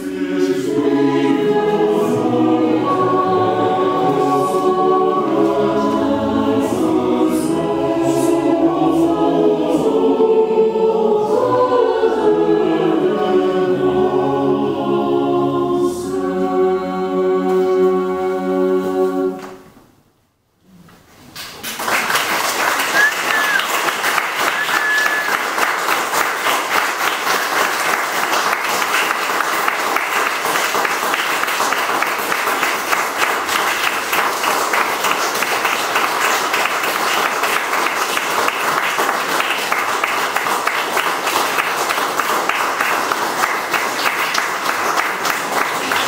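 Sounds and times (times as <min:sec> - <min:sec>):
audience clapping: 0:21.3 - 0:46.0.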